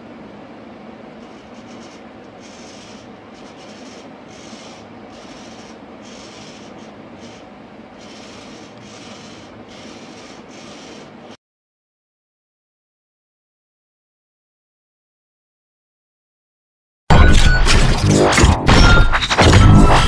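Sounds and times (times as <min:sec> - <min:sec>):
steady background noise: 0:00.0 - 0:11.4.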